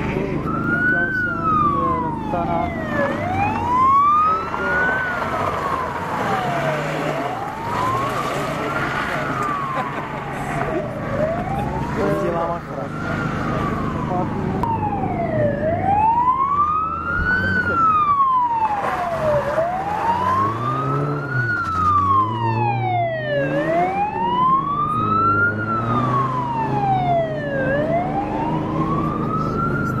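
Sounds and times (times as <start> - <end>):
car engine passing: 0.0 - 30.0
wailing siren: 0.0 - 30.0.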